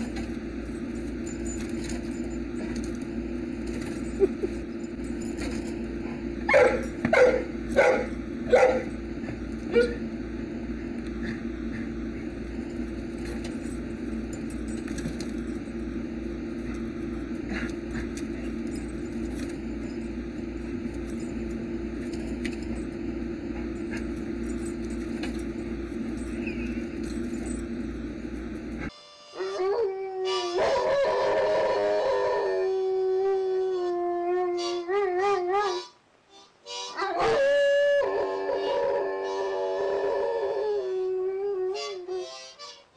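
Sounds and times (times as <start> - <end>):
steady low rumble: 0.0 - 28.9
dog howling: 29.4 - 35.9, 37.0 - 42.2.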